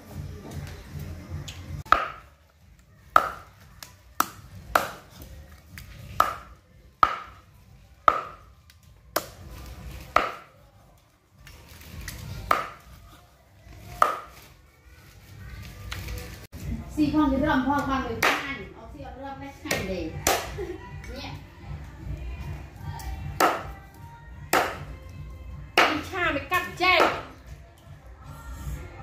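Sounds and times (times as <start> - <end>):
cleaver chopping on wooden board: 6.2 - 7.4, 8.1 - 8.4.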